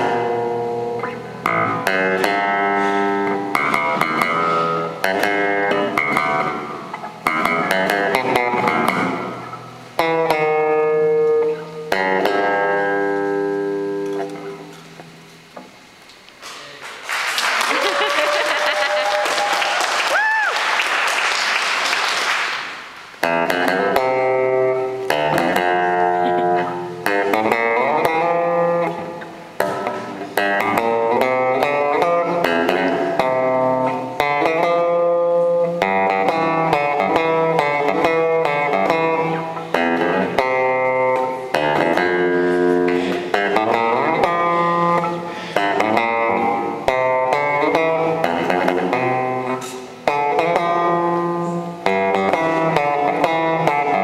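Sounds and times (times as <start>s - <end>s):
electric bass guitar: 0.0s - 16.0s, 22.7s - 54.0s
audience applause: 16.7s - 23.0s.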